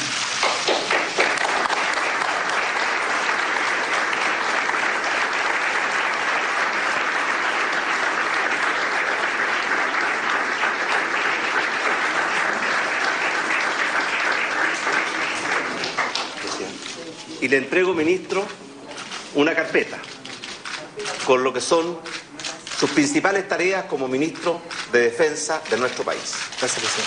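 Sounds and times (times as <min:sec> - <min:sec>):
audience applauding: 0:00.0 - 0:16.9.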